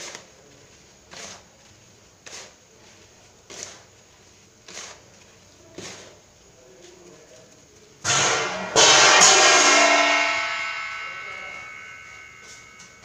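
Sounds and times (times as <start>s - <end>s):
hands rubbing semolina: 0.0s - 8.0s.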